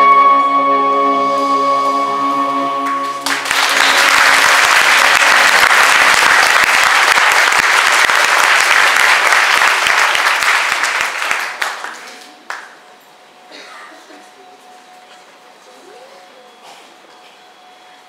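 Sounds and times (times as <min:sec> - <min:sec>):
backing track chord: 0:00.0 - 0:05.4
audience applauding: 0:02.8 - 0:12.8.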